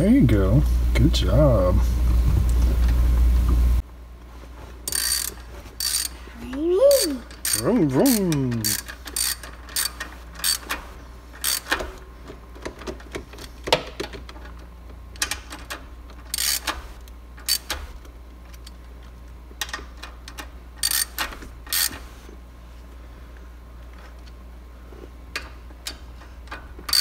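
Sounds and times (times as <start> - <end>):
socket ratchet clicking: 4.9 - 6.2, 6.9 - 10.8, 11.4 - 11.9, 15.2 - 16.8, 17.4 - 17.8, 19.6 - 22.0, 25.4 - 27.0.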